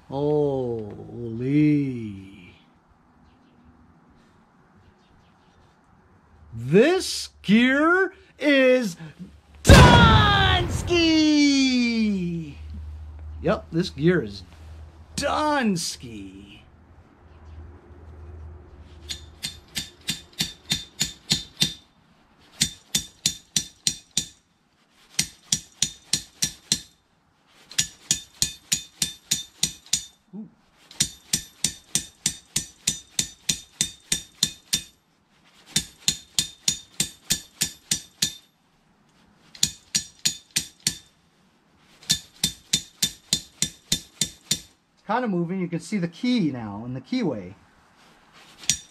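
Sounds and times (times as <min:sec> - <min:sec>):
rapid metal-on-metal tapping: 0:19.0 - 0:21.9, 0:22.6 - 0:24.5, 0:25.1 - 0:27.0, 0:27.6 - 0:30.2, 0:30.9 - 0:35.0, 0:35.7 - 0:38.5, 0:39.5 - 0:41.2, 0:42.0 - 0:44.8, 0:48.6 - 0:48.9.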